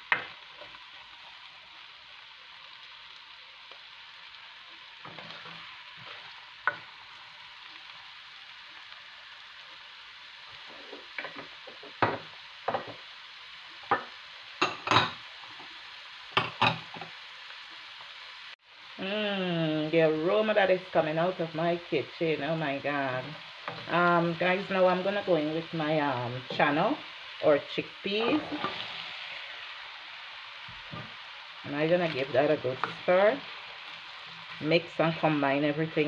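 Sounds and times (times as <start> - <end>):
vegetables sizzling in hot oil: 0.0 - 36.0
spatula scraping a pan: 28.1 - 29.5.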